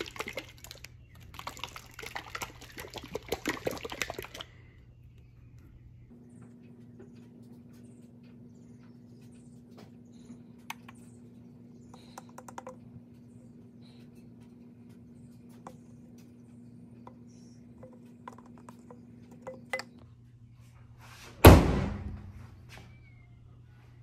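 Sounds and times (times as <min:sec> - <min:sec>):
faint steady hum: 0:00.0 - 0:21.2
bottle clicks and taps: 0:12.0 - 0:12.8, 0:17.8 - 0:20.0.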